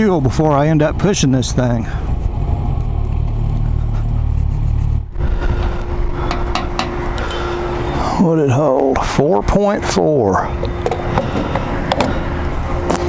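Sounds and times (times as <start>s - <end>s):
fuel pump humming: 0.0s - 13.0s
motorcycle engine rumbling: 0.0s - 13.0s
wind noise: 0.2s - 8.2s.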